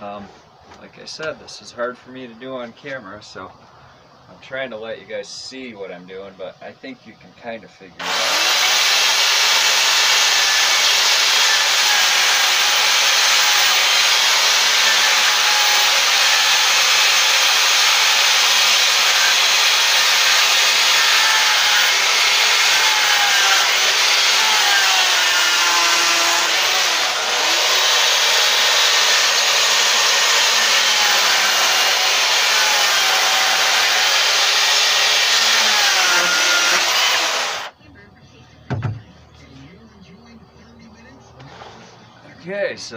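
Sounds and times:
electric chainsaw cutting log: 8.0 - 37.7.

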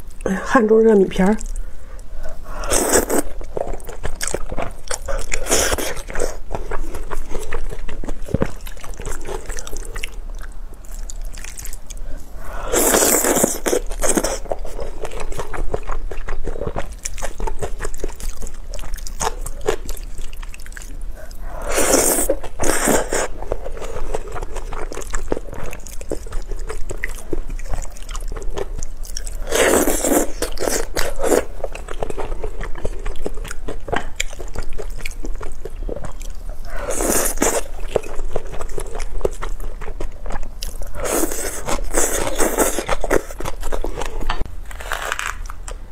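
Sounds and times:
person chewing noodles: 1.4 - 45.8
slurping noodles: 12.4 - 14.4.

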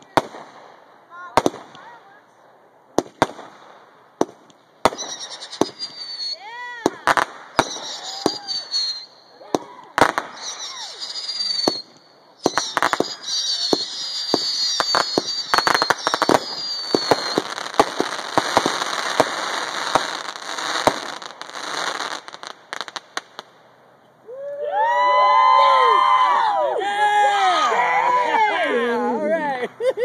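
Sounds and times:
fireworks bangs and crackling: 0.0 - 23.7
fireworks whistling: 4.8 - 23.5.

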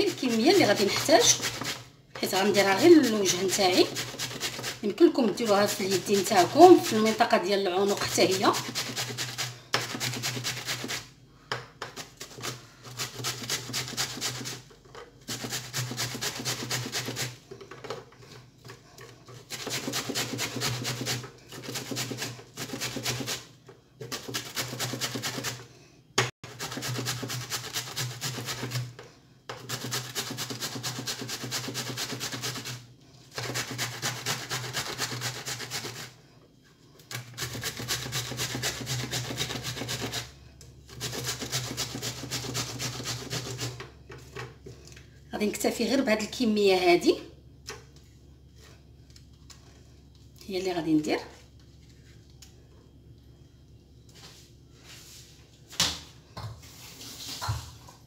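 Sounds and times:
cucumber grating on grater: 0.0 - 11.1, 11.8 - 17.4, 19.3 - 25.6, 26.4 - 36.2, 37.1 - 43.8.

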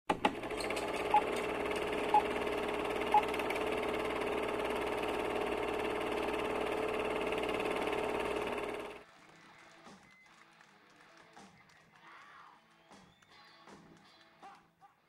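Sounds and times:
film projector whirring rattle: 0.1 - 9.0.

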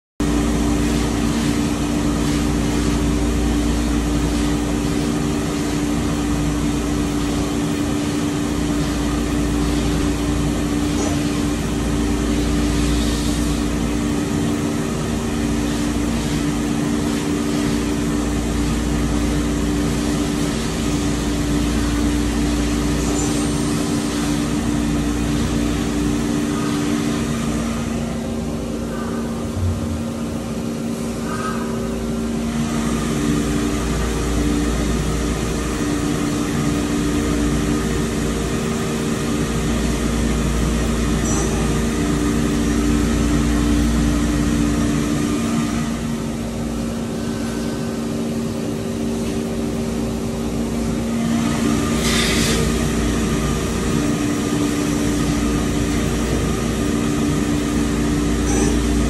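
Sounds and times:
machining centre humming: 0.2 - 59.0.

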